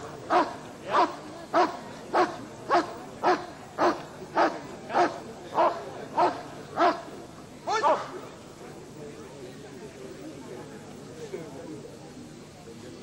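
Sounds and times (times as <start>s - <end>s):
dog barking: 0.3s - 7.0s.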